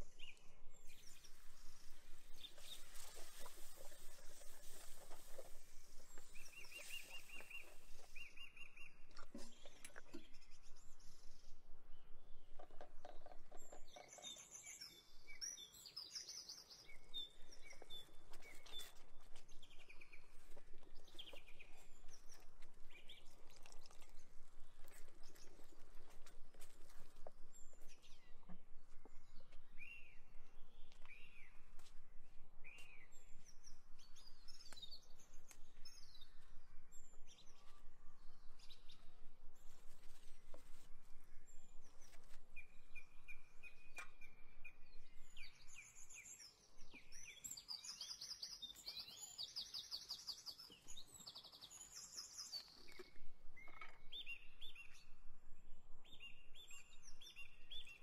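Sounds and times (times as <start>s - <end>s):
birds chirping and singing: 0.0s - 24.4s, 41.4s - 55.0s.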